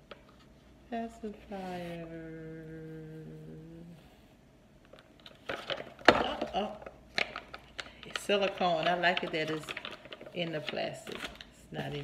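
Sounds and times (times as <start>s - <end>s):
woman humming: 1.6s - 4.2s
plastic packaging crackling: 4.9s - 12.0s.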